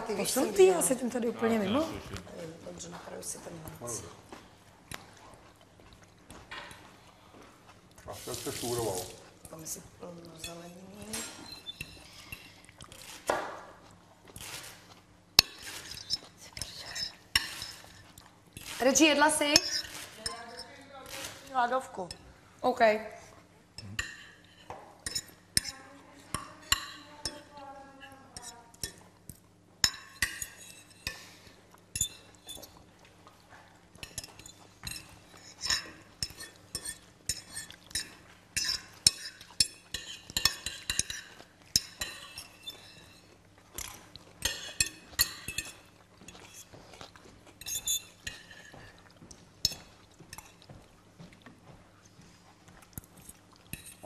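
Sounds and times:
forks clinking on plates: 29.8 - 32.8, 34.0 - 46.7, 47.6 - 49.0.

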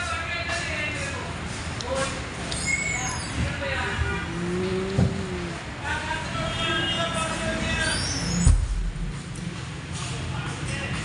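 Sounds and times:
room noise: 1.8 - 10.4
faint background music: 3.5 - 11.0
steady low hum: 4.1 - 5.8.

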